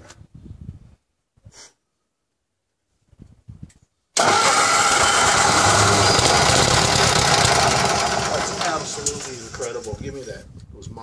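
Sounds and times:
small gasoline engine running: 4.2s - 9.8s.

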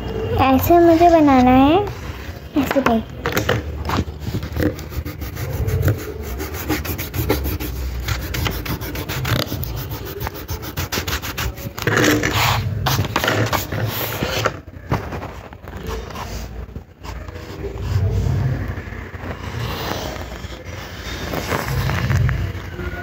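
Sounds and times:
rubbing on drawing paper: 4.3s - 14.5s.

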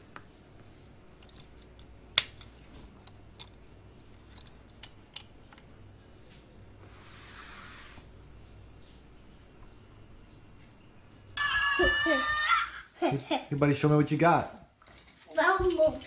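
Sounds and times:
plastic toy parts clicking: 1.2s - 3.6s, 4.3s - 5.6s.

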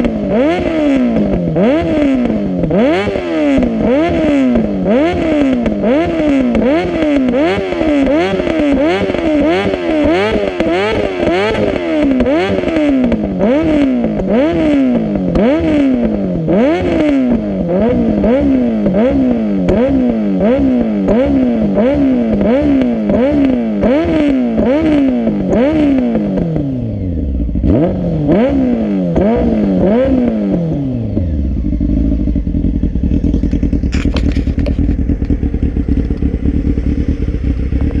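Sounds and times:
motorcycle engine revving and idling: 0.0s - 38.0s
exhaust pops and crackles: 1.2s - 16.2s, 31.6s - 38.0s.

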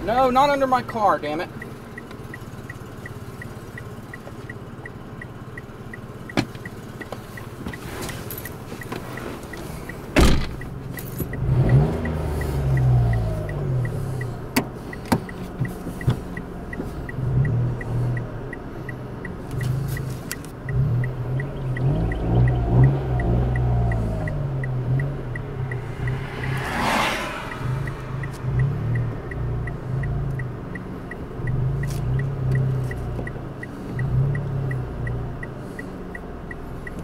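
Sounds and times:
car engine running: 0.0s - 37.0s
car warning chime ticking: 0.0s - 37.0s
car door shutting: 6.3s - 11.3s.

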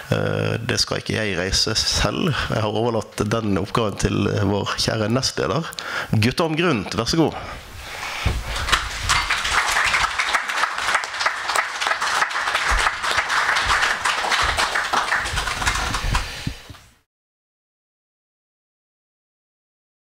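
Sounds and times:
audience applauding: 8.6s - 16.8s.

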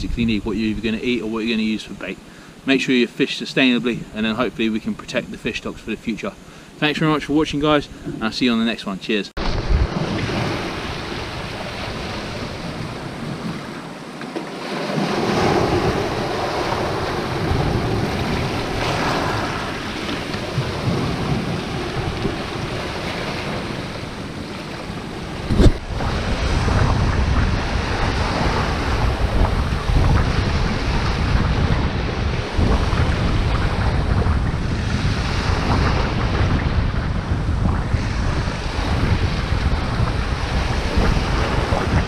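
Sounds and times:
wind buffeting microphone: 0.0s - 2.2s, 9.4s - 42.0s
waves breaking on pebble beach: 9.4s - 42.0s.

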